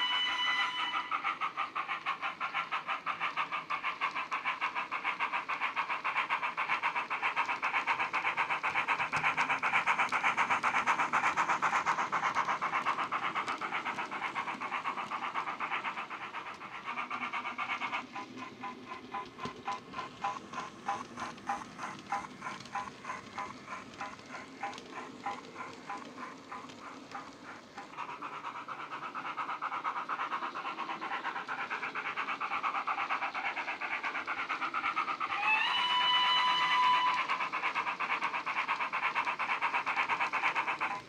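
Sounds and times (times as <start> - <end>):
locomotive whistle: 0.0 - 1.2, 35.4 - 37.2
steam locomotive chuffing: 0.0 - 41.0.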